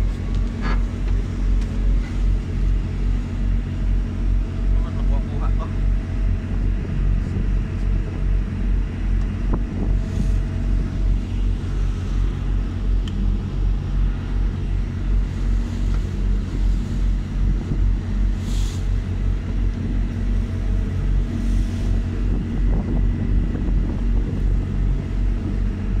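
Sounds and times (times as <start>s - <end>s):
boat engine droning: 0.0s - 26.0s
water rushing past hull: 5.8s - 25.9s.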